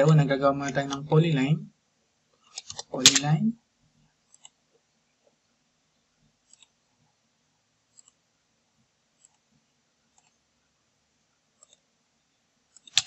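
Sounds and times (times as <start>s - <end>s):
computer mouse clicks: 2.5s - 3.3s, 4.3s - 4.6s, 6.4s - 6.8s, 7.9s - 8.2s, 9.2s - 9.5s, 10.1s - 10.4s, 11.6s - 11.9s, 12.7s - 13.0s.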